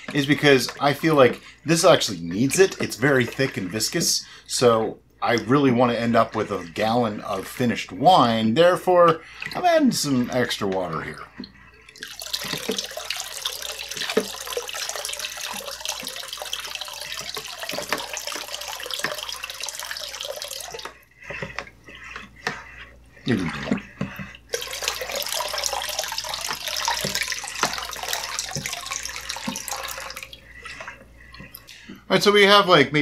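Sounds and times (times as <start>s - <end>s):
water pouring into bucket: 0.0s - 31.9s.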